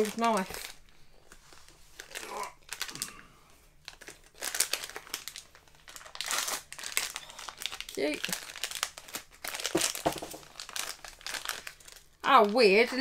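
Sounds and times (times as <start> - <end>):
foil packet crinkling: 0.0 - 3.2, 3.8 - 13.0.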